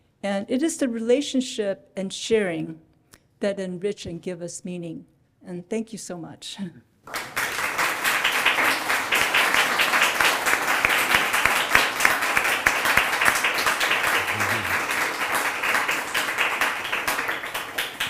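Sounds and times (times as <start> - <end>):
audience applauding: 7.1 - 18.0.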